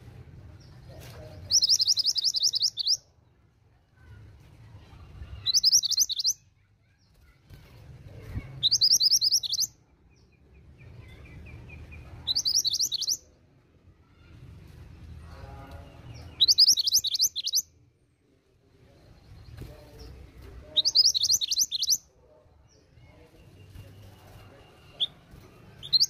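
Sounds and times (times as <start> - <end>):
bird high trilled calls: 1.5 - 3.0, 5.4 - 6.4, 8.6 - 9.7, 12.3 - 13.2, 16.4 - 17.7, 20.8 - 22.0, 25.8 - 26.0.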